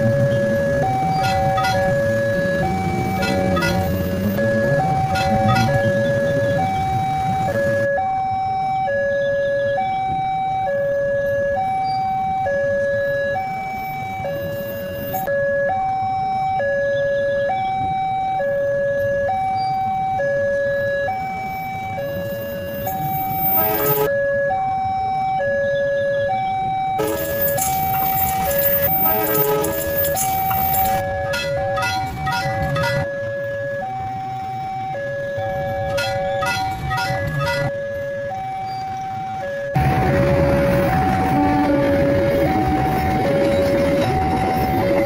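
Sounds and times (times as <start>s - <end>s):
electronic warning siren hi-lo alarm: 0.0s - 45.0s
rushing noise: 39.7s - 45.0s.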